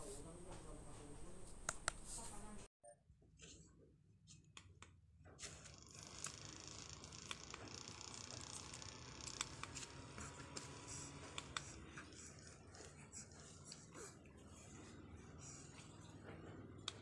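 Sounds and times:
mini fan whirring: 0:05.5 - 0:17.0.

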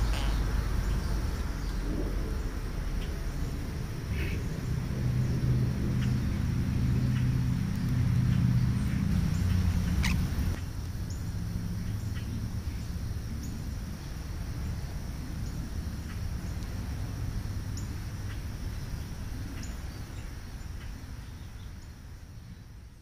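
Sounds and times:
small birds chirping: 0:00.0 - 0:14.3
steady low rumble: 0:00.0 - 0:23.0.

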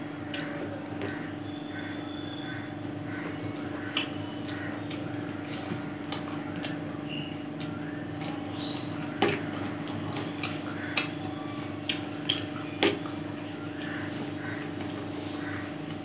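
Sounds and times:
steady hum: 0:00.0 - 0:16.0
person chewing food: 0:03.4 - 0:06.8, 0:07.6 - 0:16.0.

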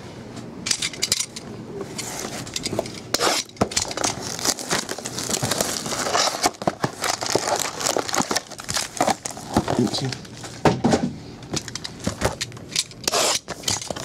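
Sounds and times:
cardboard and foil packs rustling: 0:01.8 - 0:14.0
plastic wrap crinkling and tearing: 0:03.9 - 0:10.6.

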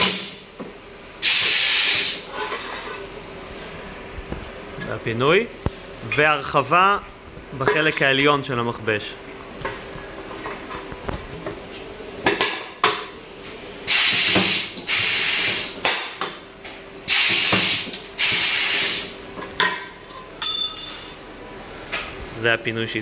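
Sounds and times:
compressed air hissing: 0:01.2 - 0:02.3, 0:13.9 - 0:15.8, 0:17.1 - 0:19.2.

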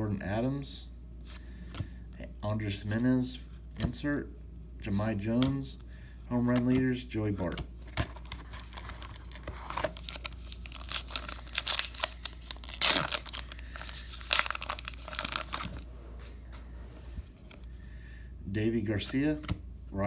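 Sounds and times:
card pack wrapper crinkling and tearing: 0:07.9 - 0:15.8.

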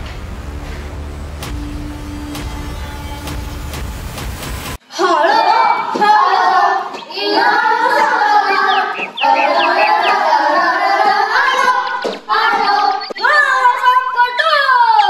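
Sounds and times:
backing music: 0:00.0 - 0:04.8
children singing: 0:04.9 - 0:15.0.

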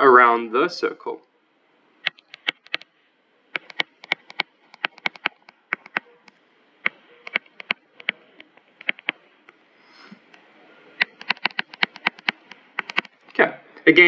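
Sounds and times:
stylus tapping on touchscreen: 0:02.0 - 0:02.9, 0:03.5 - 0:09.6, 0:11.0 - 0:13.4.

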